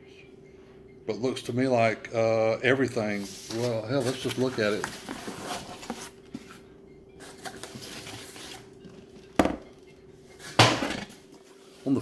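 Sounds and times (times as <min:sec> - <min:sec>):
plastic case scraping and rustling: 0:03.5 - 0:06.5.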